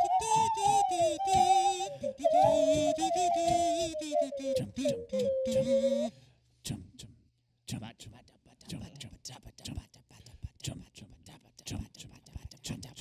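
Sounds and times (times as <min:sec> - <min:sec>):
high-pitched voice singing: 0:00.0 - 0:06.1.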